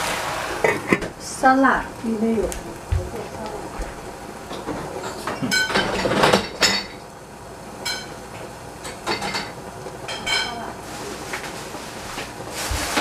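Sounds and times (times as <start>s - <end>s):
dishes and cutlery clinking: 4.5s - 7.0s, 7.8s - 8.2s, 8.8s - 10.6s
dishes clattering: 4.5s - 7.1s, 7.8s - 8.2s, 8.8s - 10.7s.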